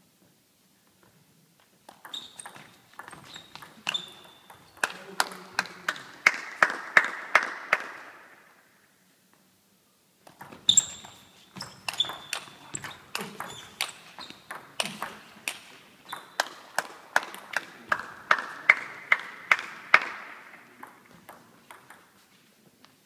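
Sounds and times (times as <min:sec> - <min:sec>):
table tennis ball rally: 0:01.9 - 0:08.0, 0:10.2 - 0:22.2.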